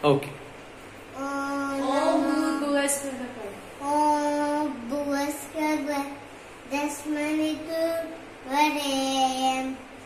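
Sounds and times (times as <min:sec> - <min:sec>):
child singing a prayer chant: 0:01.2 - 0:02.6, 0:03.8 - 0:09.9.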